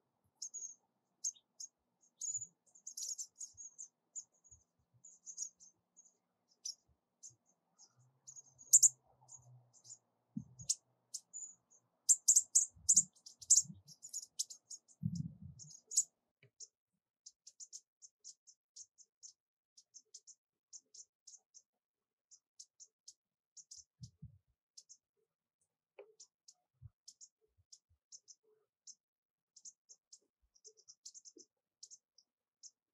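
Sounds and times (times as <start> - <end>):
birds' high ticking calls: 0.0 - 21.7, 22.3 - 25.1, 26.0 - 32.8
soft low thumps: 15.0 - 15.7.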